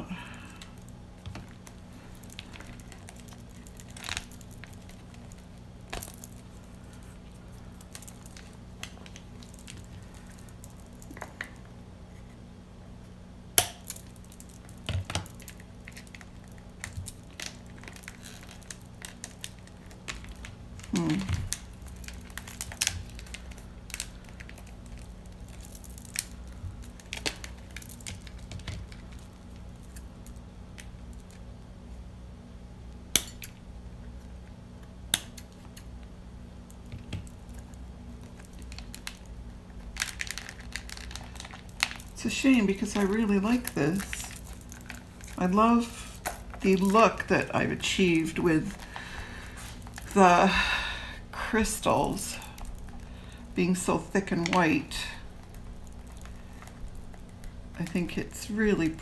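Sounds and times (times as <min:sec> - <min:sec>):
resin bowl crinkling: 0:00.0 - 0:32.0, 0:33.1 - 0:59.0
faint steady hum: 0:00.0 - 0:59.0.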